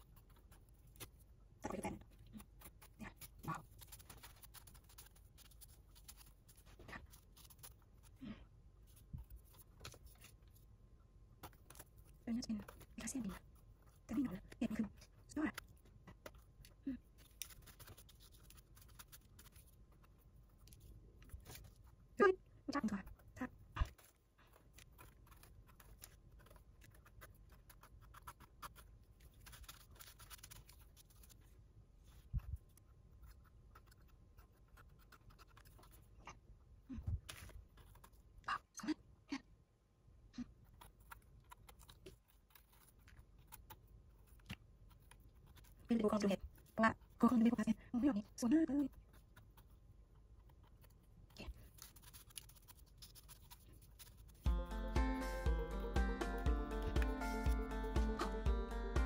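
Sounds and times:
knife scraping mushrooms: 0.0 - 8.2, 17.1 - 21.8, 50.6 - 54.5.

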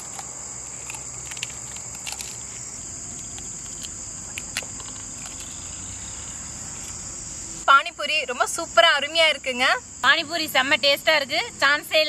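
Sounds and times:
insects chirring: 0.0 - 12.0.

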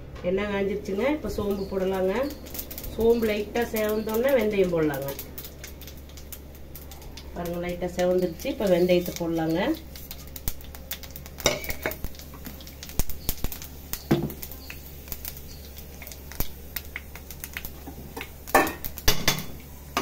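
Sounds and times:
steady low hum: 0.0 - 20.0
seeds crackling in hot oil: 0.6 - 20.0
utensils clinking against pan: 11.4 - 12.0, 18.2 - 20.0.

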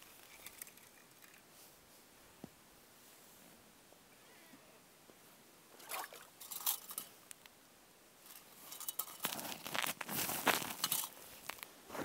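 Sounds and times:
snow crunching and rustling: 9.2 - 12.0.

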